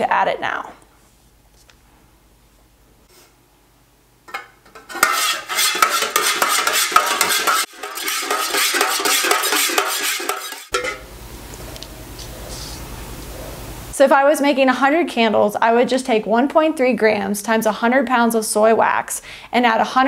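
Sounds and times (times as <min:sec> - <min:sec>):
utensil scraping metal pitcher: 0:04.8 - 0:11.0.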